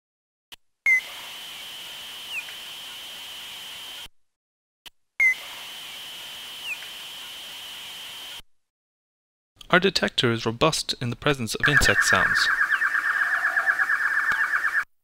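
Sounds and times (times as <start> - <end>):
bat echolocation chirps: 11.6 - 14.9
steady high tone: 11.6 - 14.9.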